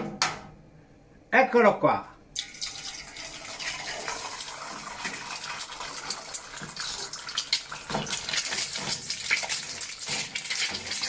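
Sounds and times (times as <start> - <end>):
liquid simmering in a pan: 2.4 - 11.0.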